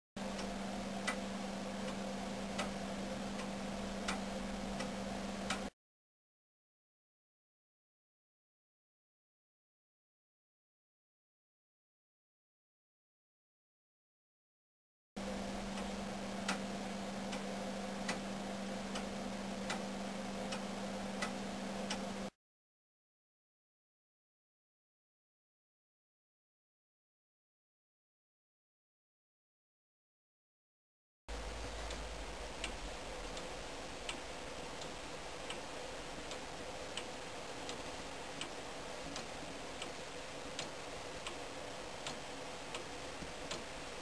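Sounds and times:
clock ticking: 0.2s - 5.7s, 15.2s - 22.3s, 31.3s - 44.0s
steady low hum: 0.2s - 5.7s, 15.2s - 22.4s, 31.3s - 44.0s.

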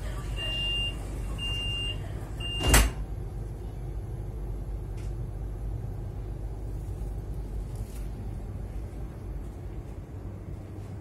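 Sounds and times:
train carriage low rumble: 0.0s - 11.0s
train door warning beeps: 0.2s - 3.0s
train doors shutting thud: 2.5s - 3.1s.

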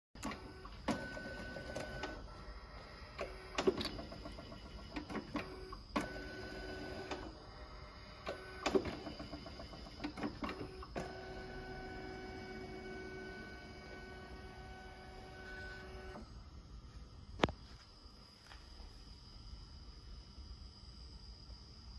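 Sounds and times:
motor whine: 0.2s - 16.5s.

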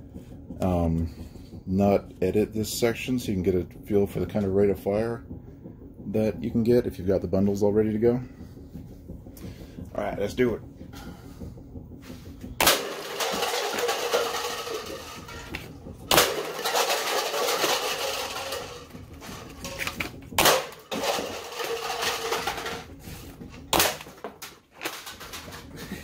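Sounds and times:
elastic launcher firing thoomp: 12.6s - 13.2s, 16.1s - 16.6s, 20.4s - 20.7s.

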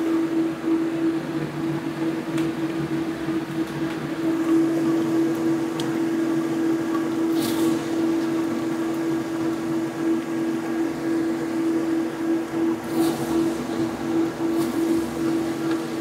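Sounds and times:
machine hum: 0.0s - 16.0s.

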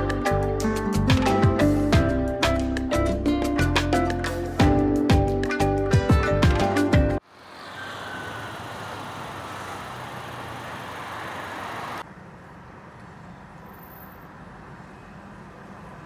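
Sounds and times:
low hum of slow traffic: 7.2s - 16.0s.

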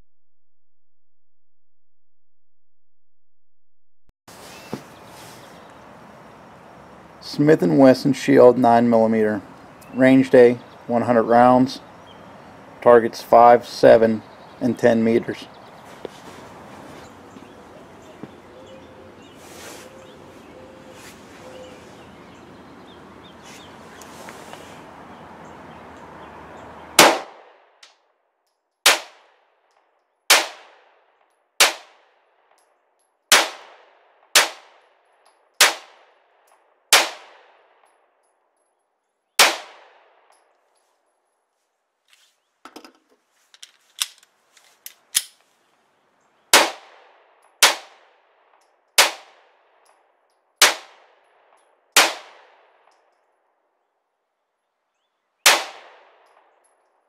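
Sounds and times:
pistol shots: 27.0s - 27.6s, 28.8s - 29.3s, 30.3s - 31.0s, 31.6s - 32.1s, 33.3s - 34.8s, 35.6s - 36.2s, 36.9s - 37.9s, 39.4s - 40.3s, 46.5s - 48.2s, 49.0s - 49.6s, 50.6s - 51.3s, 52.0s - 52.9s, 55.5s - 56.5s.

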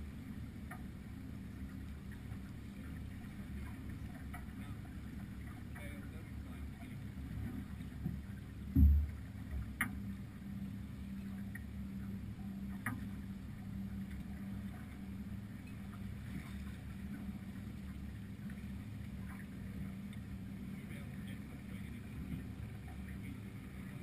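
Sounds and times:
muffled wind and water rumble: 0.0s - 24.0s
low thump: 8.7s - 9.2s.

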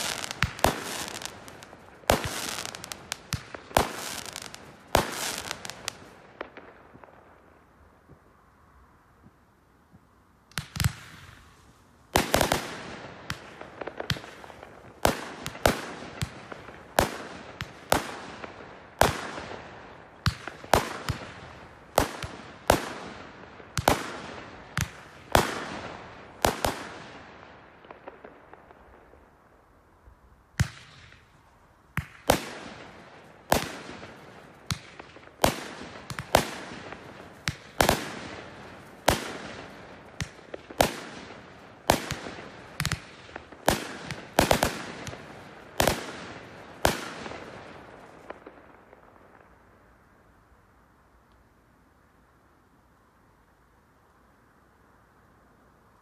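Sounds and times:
fireworks bangs: 0.0s - 7.4s, 10.5s - 29.2s, 31.9s - 49.6s.

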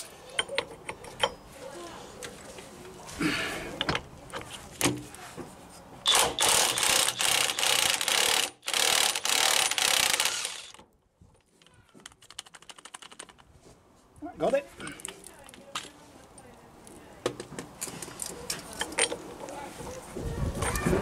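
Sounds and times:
fast clicks: 12.0s - 13.5s.

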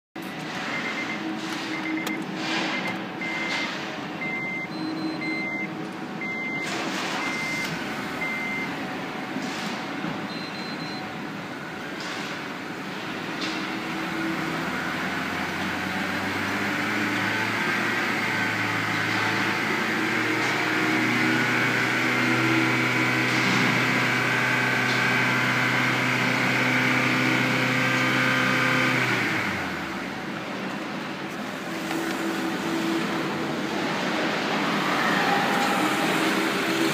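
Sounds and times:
car warning chime beeping: 0.7s - 2.2s, 2.8s - 3.6s, 4.2s - 8.7s, 10.3s - 11.0s.

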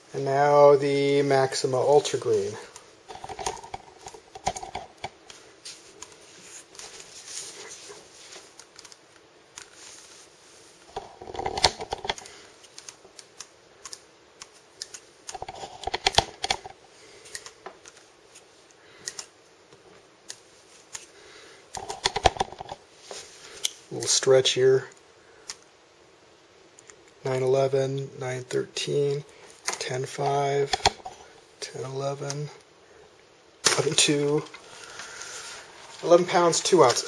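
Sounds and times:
cloth rustling: 1.8s - 9.0s, 33.8s - 37.0s
handling clicks and scrapes: 2.0s - 9.0s, 10.8s - 19.3s, 21.7s - 24.1s, 29.5s - 31.4s.

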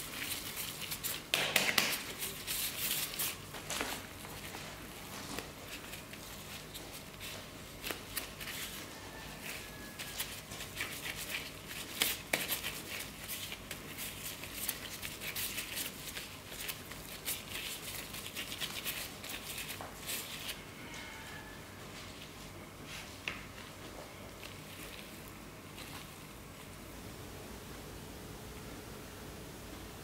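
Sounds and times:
sticky dough slapping: 0.1s - 4.5s, 9.4s - 20.4s.

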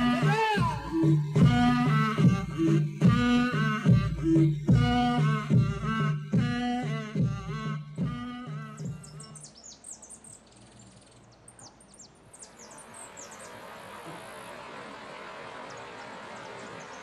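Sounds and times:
music track: 0.0s - 9.3s.

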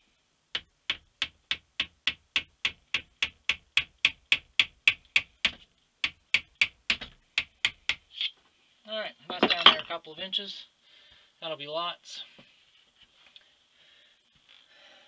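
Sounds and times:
hammer tapping wooden dowel: 0.5s - 8.1s.

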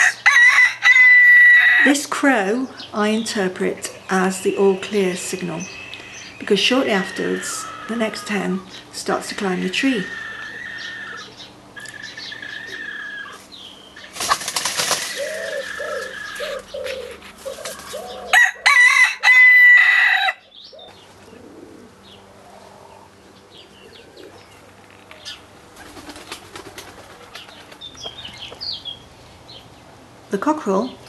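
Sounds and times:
cockerel crowing: 0.0s - 1.9s, 6.9s - 8.4s, 10.0s - 13.4s, 15.2s - 20.6s
chickens clucking: 5.2s - 18.7s
wing flapping: 14.0s - 18.1s, 25.7s - 28.0s.

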